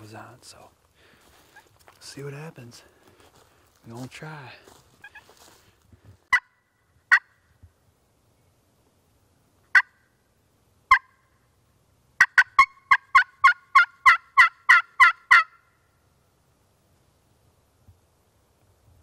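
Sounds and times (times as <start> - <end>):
turkey call yelps: 5.0 - 5.3, 6.3 - 7.4, 9.7 - 10.0, 10.9 - 11.2, 12.2 - 15.7.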